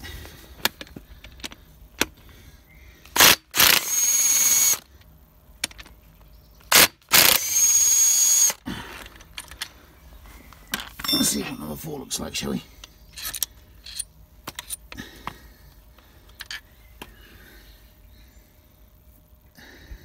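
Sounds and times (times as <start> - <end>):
impact wrench whine: 3.1 - 4.9, 6.7 - 8.6.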